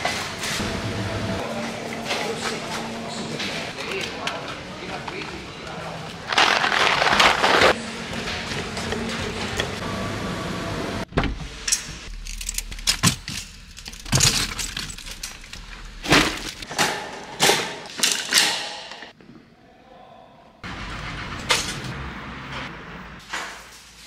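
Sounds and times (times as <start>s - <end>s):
store noise: 0.0s - 18.4s.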